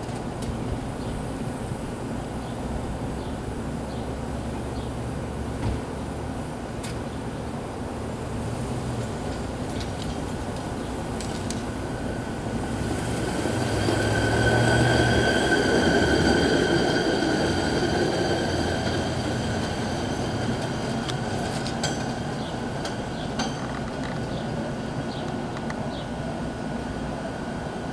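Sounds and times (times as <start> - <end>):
truck rolling on rails: 8.4 - 25.5.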